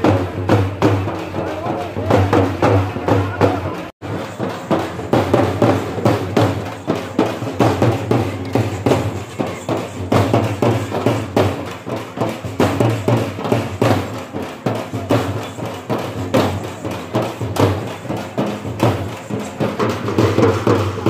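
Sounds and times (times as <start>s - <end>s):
frame drums beaten with sticks: 0.0s - 21.0s.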